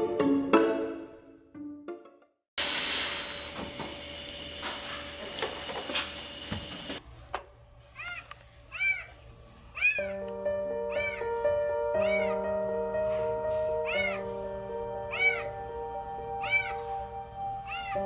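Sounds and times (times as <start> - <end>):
background music with held notes: 0.0 - 2.3, 10.0 - 18.0
cat meowing: 8.0 - 9.2, 9.8 - 10.2, 10.9 - 11.4, 12.0 - 12.4, 13.8 - 14.3, 15.1 - 15.6, 16.3 - 17.0, 17.6 - 18.0.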